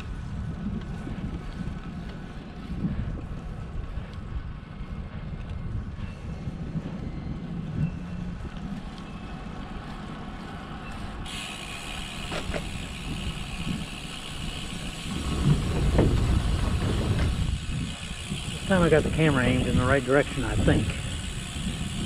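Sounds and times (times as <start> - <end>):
bike tyres rolling on pavement: 0.0 - 22.0
wind buffeting microphone: 0.0 - 22.0
wheels knocking on wooden bridge: 15.1 - 17.4.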